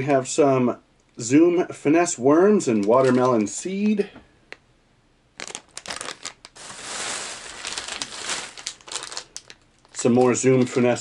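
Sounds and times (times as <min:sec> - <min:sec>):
plastic packaging crinkling: 0:02.7 - 0:04.0, 0:05.3 - 0:11.0.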